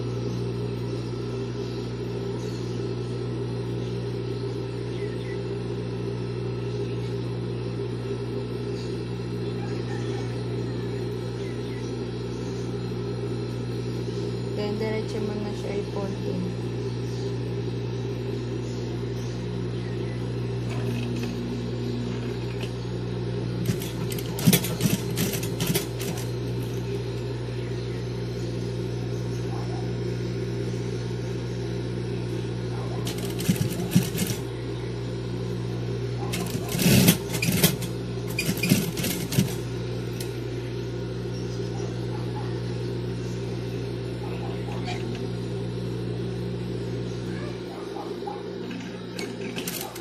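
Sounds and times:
sewing machine motor humming: 20.4s - 27.6s, 31.8s - 41.0s, 43.8s - 50.0s
rapid needle stitching: 23.6s - 26.3s, 33.0s - 34.4s, 36.3s - 39.6s.

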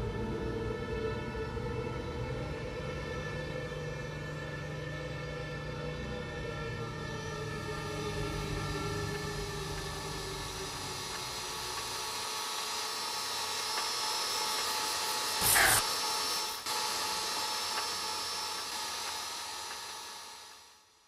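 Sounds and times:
hiss: 11.1s - 20.3s
loud noise burst: 14.4s - 16.1s.

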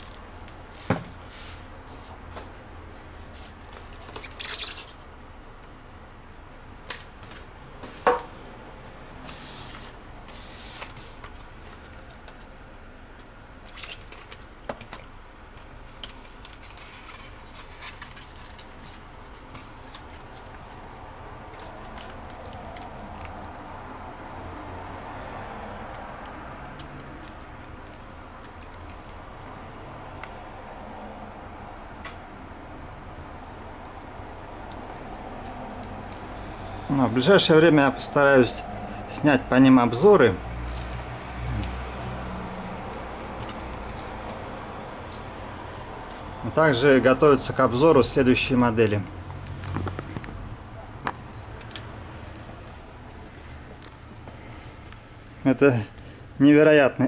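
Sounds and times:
foam and plastic wrapping rustling: 16.0s - 20.8s.

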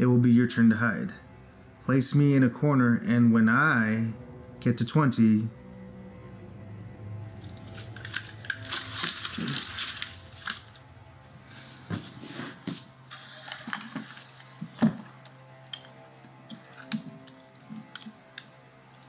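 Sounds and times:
paper crinkling: 7.4s - 10.8s, 11.6s - 15.2s.

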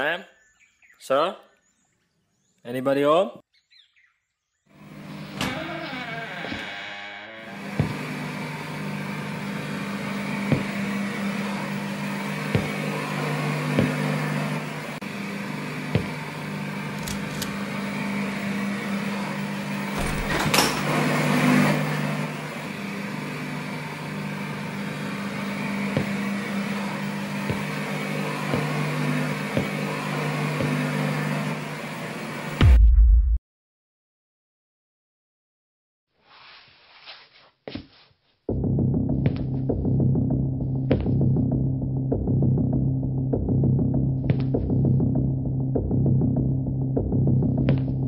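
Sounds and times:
low humming tones: 4.8s - 32.8s, 38.5s - 48.0s.

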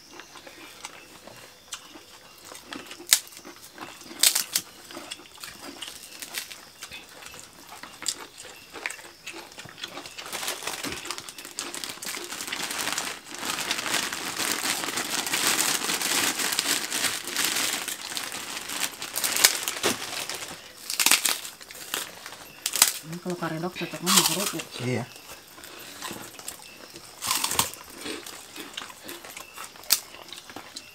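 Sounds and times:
plastic bag crinkling: 9.5s - 24.8s.

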